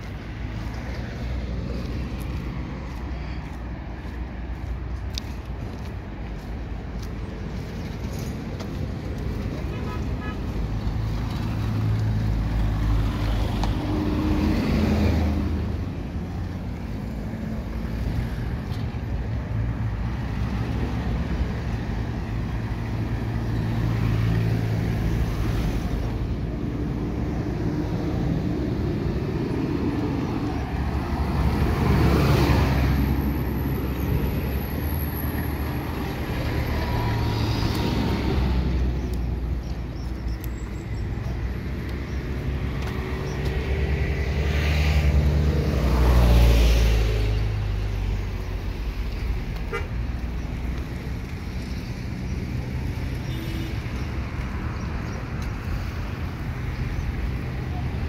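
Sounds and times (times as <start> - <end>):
vehicle engines running: 0.0 - 58.0
vehicles passing close by: 0.0 - 58.0.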